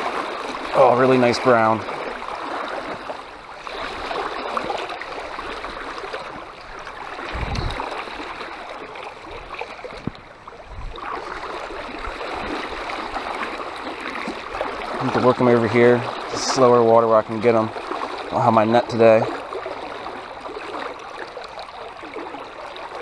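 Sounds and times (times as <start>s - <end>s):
creek water rushing over riffle: 0.0s - 23.0s
dull low thumps: 7.3s - 7.9s.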